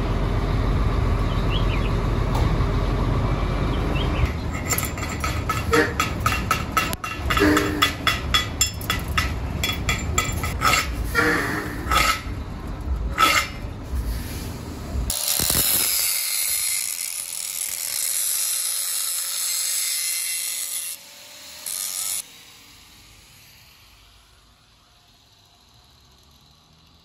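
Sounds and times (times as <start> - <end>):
angle grinder grinding steel: 4.2 - 14.2, 15.0 - 25.3
scraping and knocks on steel: 4.3 - 12.4, 13.0 - 13.7.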